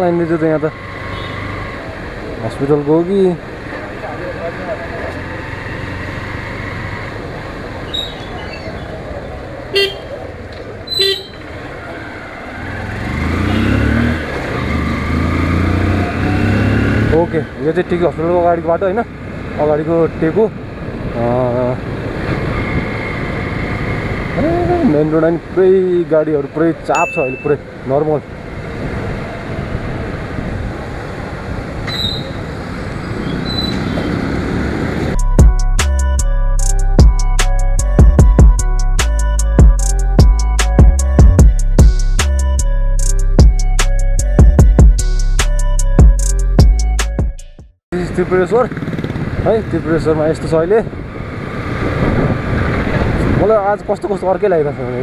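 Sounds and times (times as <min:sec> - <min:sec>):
road and wind noise: 0:00.0 - 0:55.0
motorcycle engine: 0:09.4 - 0:25.1, 0:48.0 - 0:53.2
horn toots: 0:09.7 - 0:10.2, 0:10.9 - 0:11.6
wind rush: 0:28.6 - 0:32.7, 0:50.8 - 0:53.8.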